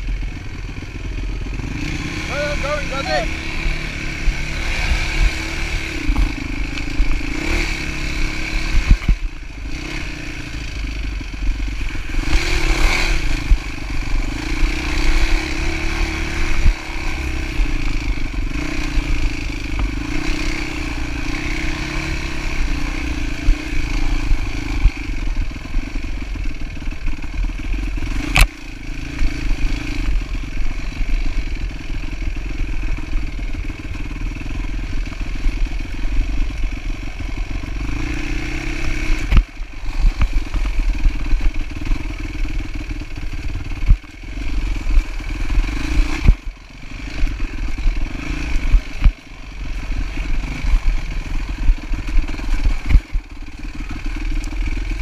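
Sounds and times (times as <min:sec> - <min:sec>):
dirt bike engine running: 0:00.0 - 0:55.0
bike rattling and knocking: 0:04.3 - 0:10.0, 0:31.8 - 0:55.0.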